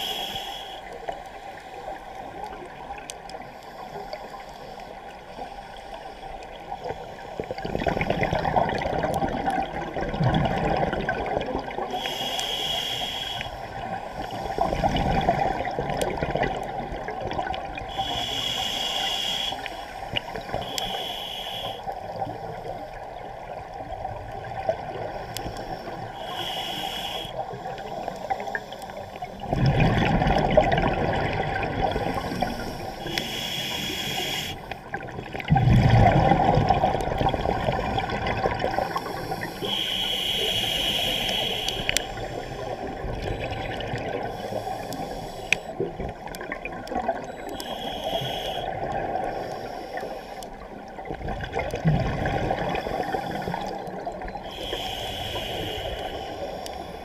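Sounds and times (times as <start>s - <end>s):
hissing regulator inhalations: 0.0s - 1.8s, 11.9s - 15.0s, 17.9s - 22.9s, 25.0s - 29.4s, 32.1s - 34.9s, 38.7s - 43.3s, 44.2s - 45.8s, 47.4s - 50.8s, 52.6s - 57.0s
bubbling exhaled air: 29.4s - 50.1s, 51.0s - 56.6s.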